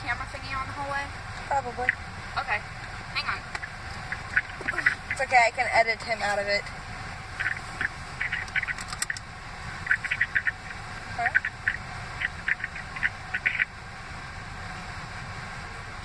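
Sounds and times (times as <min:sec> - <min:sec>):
road and engine noise inside car: 0:00.0 - 0:16.0.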